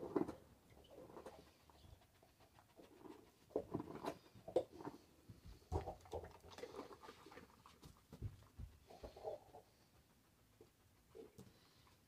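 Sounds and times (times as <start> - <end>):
dog sniffing: 1.0 - 6.0, 6.6 - 12.0.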